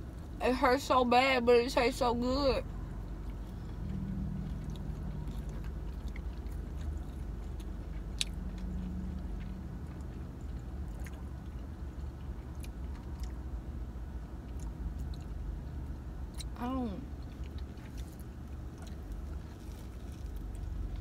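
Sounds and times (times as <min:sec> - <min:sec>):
people chewing: 0:03.0 - 0:13.4, 0:17.2 - 0:21.0.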